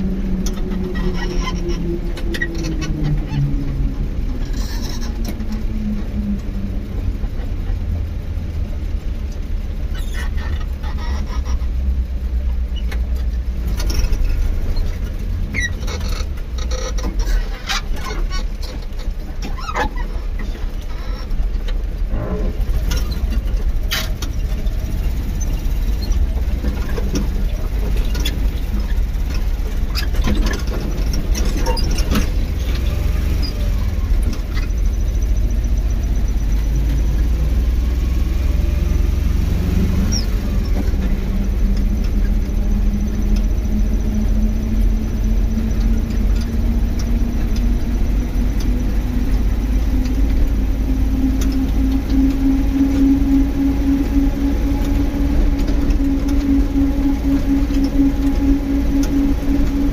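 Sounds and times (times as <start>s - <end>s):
vehicle rumbling on rough road: 0.0s - 59.9s.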